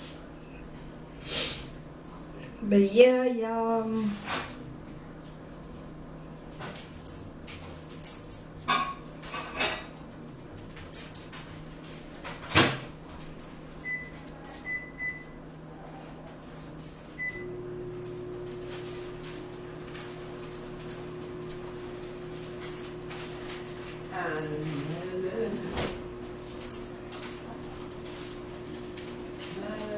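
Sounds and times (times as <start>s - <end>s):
microwave oven humming: 0.0s - 29.9s
keypad beeps: 13.8s - 15.4s.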